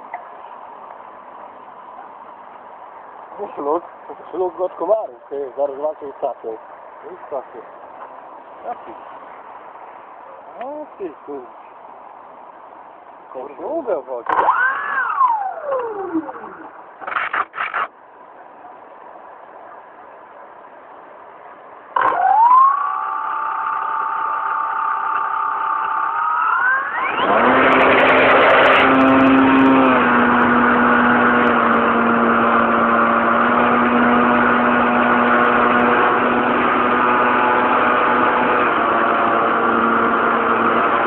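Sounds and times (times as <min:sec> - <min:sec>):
model aircraft motor: 0:22.0 - 0:27.6.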